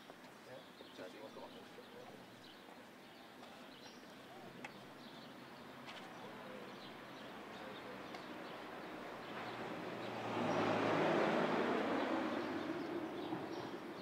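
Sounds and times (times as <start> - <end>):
distant traffic: 0.0 - 14.0
faint birds chirping: 0.0 - 14.0.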